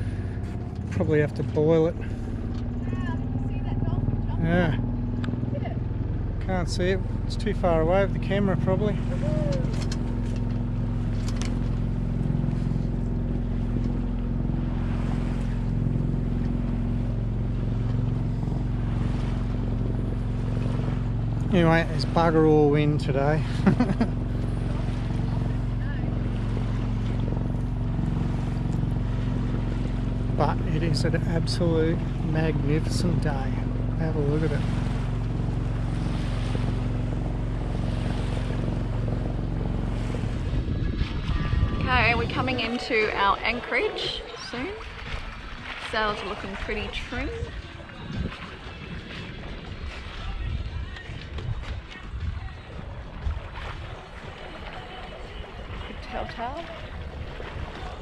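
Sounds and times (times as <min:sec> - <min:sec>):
boat engine humming: 0:00.0 - 0:58.0
water washing along hull: 0:00.0 - 0:58.0
wind: 0:00.0 - 0:58.0
wind on microphone: 0:34.6 - 0:58.0.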